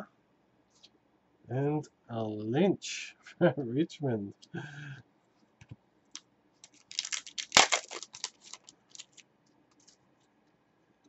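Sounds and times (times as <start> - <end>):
trading cards clicking: 6.6 - 9.9
foil wrapper crinkling: 6.6 - 10.0.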